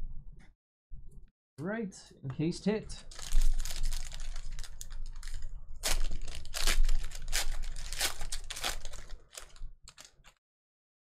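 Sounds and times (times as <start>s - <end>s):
plastic wrapper crinkling: 3.0s - 10.4s
plastic wrapper ripping: 3.1s - 10.4s.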